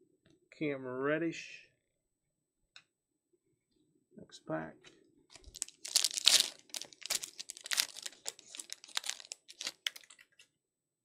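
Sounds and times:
card pack wrapper tearing and crinkling: 0:05.3 - 0:10.3.

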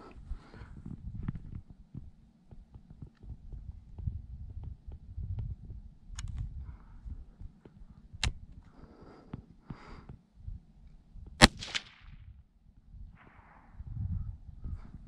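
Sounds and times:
rifle shot with echo: 0:11.4 - 0:12.1.

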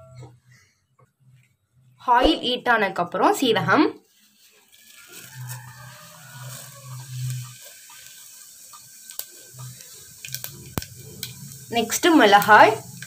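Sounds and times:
seeds sizzling in hot oil: 0:04.0 - 0:13.0.

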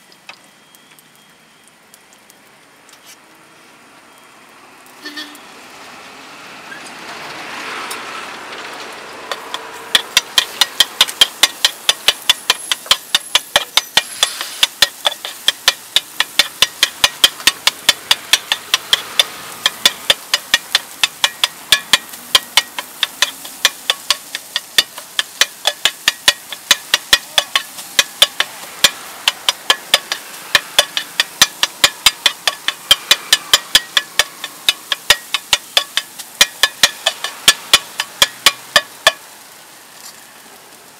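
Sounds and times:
metal spatula clacking on pan: 0:09.3 - 0:39.2.

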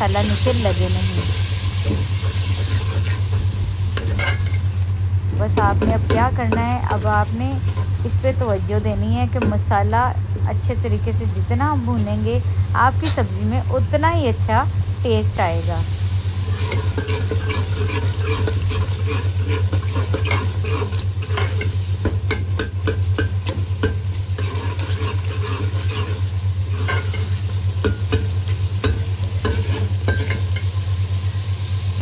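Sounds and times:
steady low hum: 0:00.0 - 0:32.0
spoon scraping a pot: 0:02.2 - 0:03.4, 0:04.0 - 0:04.6, 0:16.5 - 0:28.2, 0:28.9 - 0:30.7.

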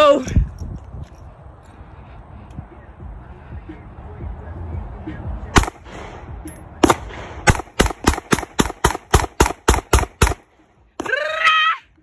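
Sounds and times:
pistol shots: 0:05.6 - 0:10.6.

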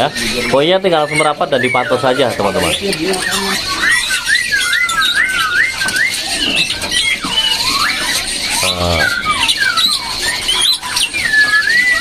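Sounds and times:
birds whistling: 0:00.0 - 0:12.0
harsh bird call: 0:00.0 - 0:12.0.

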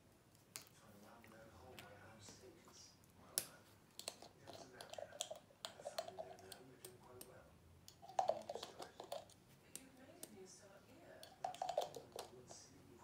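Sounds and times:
small bottles clicking and tapping: 0:03.4 - 0:10.4, 0:11.2 - 0:12.7.

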